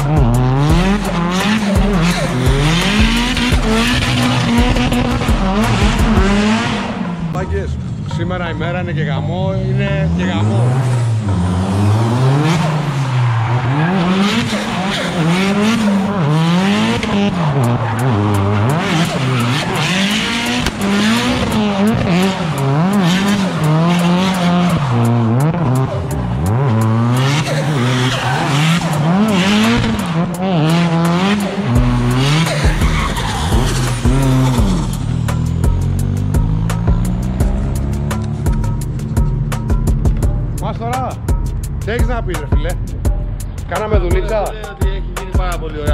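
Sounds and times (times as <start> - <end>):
car engine revving: 0.0 - 45.9
tyres squealing: 27.2 - 35.5.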